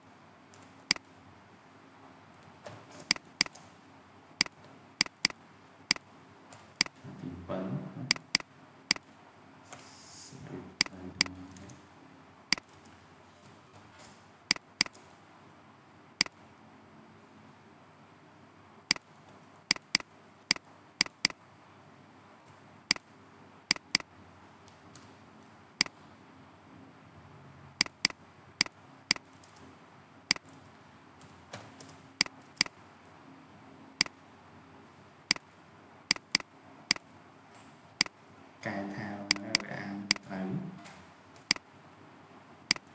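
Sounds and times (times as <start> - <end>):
faint steady hiss: 0.0 - 42.9
computer mouse clicking: 2.9 - 3.7, 4.4 - 7.0, 8.1 - 9.0, 12.5 - 12.9, 14.5 - 15.1, 19.7 - 21.4, 23.7 - 25.1, 27.8 - 29.6, 31.8 - 32.8, 36.1 - 37.1, 39.3 - 40.2.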